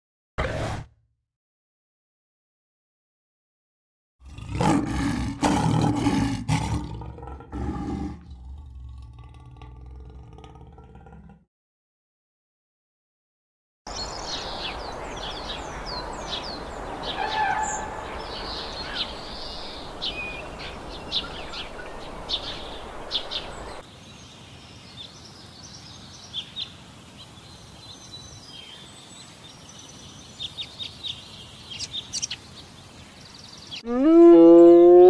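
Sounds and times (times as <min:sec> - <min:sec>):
background hiss: 0:13.9 - 0:33.8
small birds chirping: 0:13.9 - 0:34.0.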